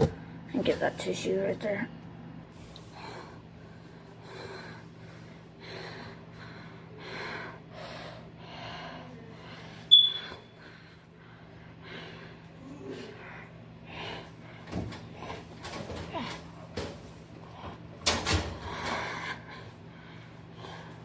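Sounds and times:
steady low hum: 0:00.0 - 0:21.0
person breathing hard and sniffling: 0:02.5 - 0:15.6, 0:18.5 - 0:21.0
sharp high squeak: 0:09.9 - 0:10.5.

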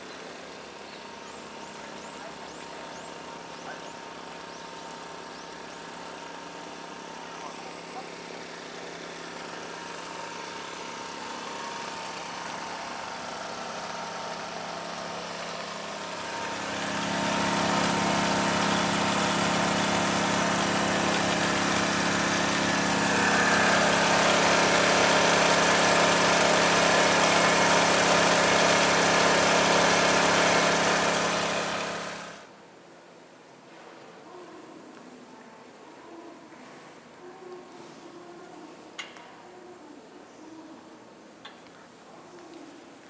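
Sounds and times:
engine idling: 0:00.0 - 0:32.5.

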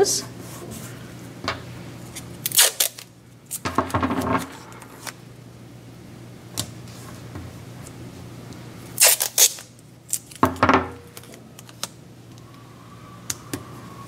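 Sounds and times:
masking tape tearing: 0:02.4 - 0:03.6, 0:09.0 - 0:10.4.

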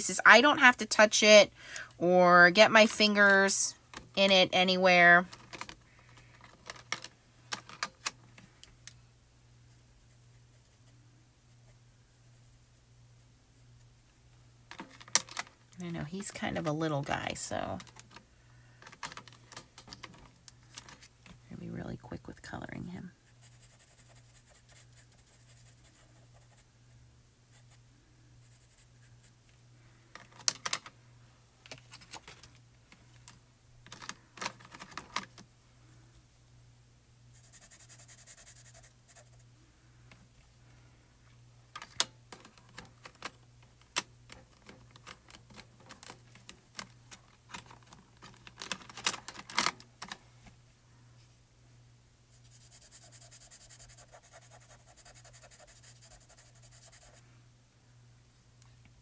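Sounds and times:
faint steady hum: 0:00.0 - 0:59.0
pencil scratching on card: 0:23.3 - 0:26.7, 0:37.3 - 0:39.4, 0:52.4 - 0:57.2.

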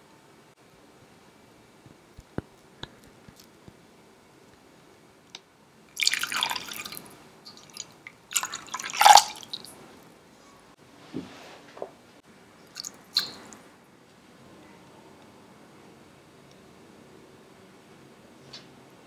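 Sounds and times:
faint water drips: 0:05.9 - 0:09.8
water pouring into saucepan: 0:06.0 - 0:09.7.

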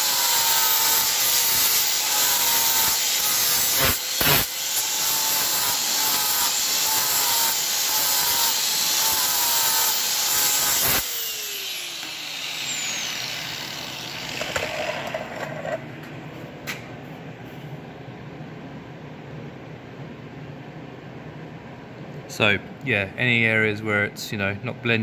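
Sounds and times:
angle grinder grinding steel: 0:00.0 - 0:15.9.

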